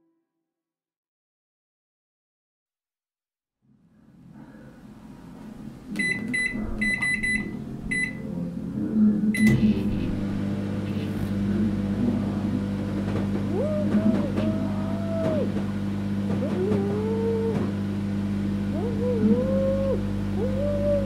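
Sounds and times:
microwave humming: 5.3 - 21.0
keypad beeps: 6.0 - 8.2.

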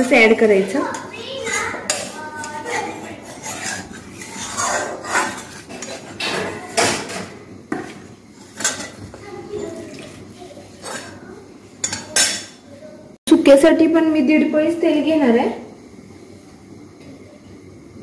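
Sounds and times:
utensil scraping metal pan: 0.8 - 7.3, 7.9 - 10.0, 10.6 - 11.2.

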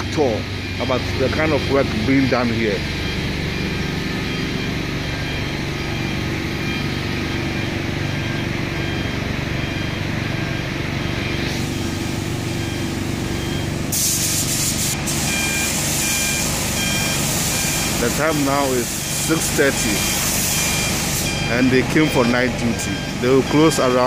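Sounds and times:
factory machinery humming: 0.0 - 24.0
paint spray gun hissing: 13.8 - 21.3.

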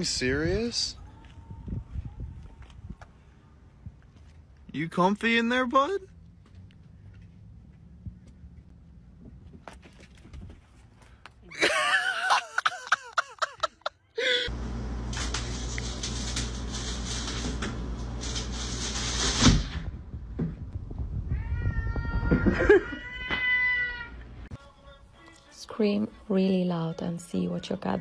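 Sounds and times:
cat meowing: 21.3 - 24.2
cat yowling: 21.3 - 24.2.

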